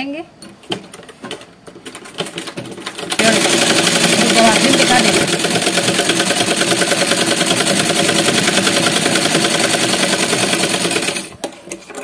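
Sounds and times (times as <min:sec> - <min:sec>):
sewing machine running: 0:02.3 - 0:11.3.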